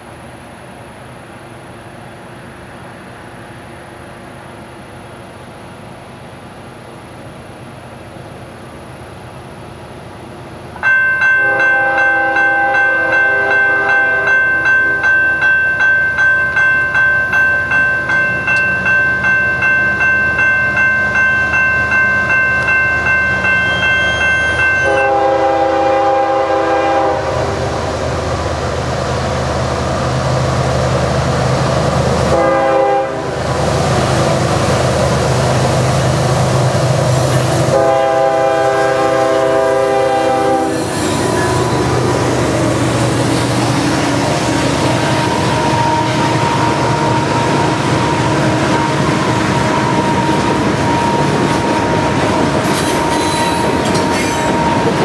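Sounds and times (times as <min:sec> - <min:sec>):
approaching train rumble: 0:00.0 - 0:55.0
bell ringing: 0:10.8 - 0:25.1
locomotive air horn blasts: 0:11.4 - 0:14.4, 0:24.8 - 0:27.6, 0:32.3 - 0:33.4, 0:37.6 - 0:41.6.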